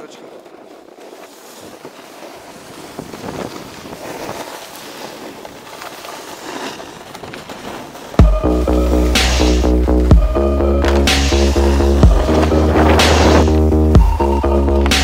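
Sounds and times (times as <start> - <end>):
snowboard sliding over snow: 0.0 - 15.0
wind rushing across microphone: 1.6 - 5.7.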